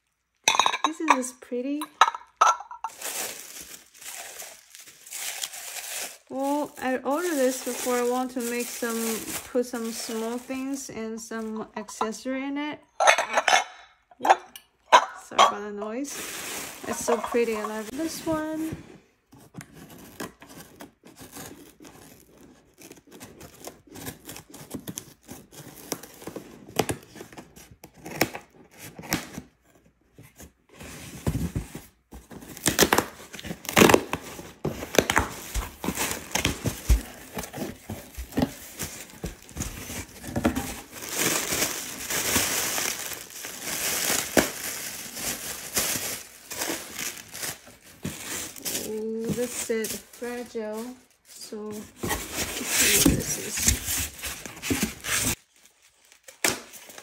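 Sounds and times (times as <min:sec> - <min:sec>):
packaging rustling and crinkling: 0:02.0 - 0:12.2, 0:16.0 - 0:57.0
cardboard and tape ripping: 0:02.9 - 0:10.8, 0:19.6 - 0:57.0.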